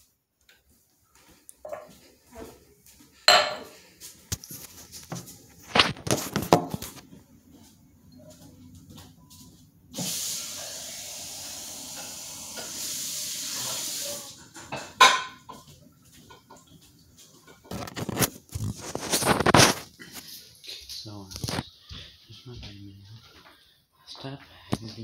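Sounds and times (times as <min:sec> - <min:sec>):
running water hissing: 0:09.9 - 0:14.5.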